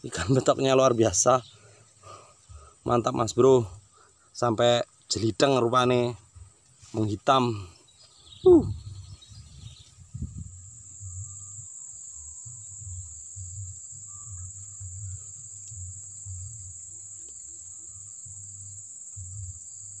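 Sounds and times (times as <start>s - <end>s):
insects droning: 0.0s - 20.0s
low microphone rumble: 7.5s - 16.8s
short falling vocal sound: 8.4s - 8.8s.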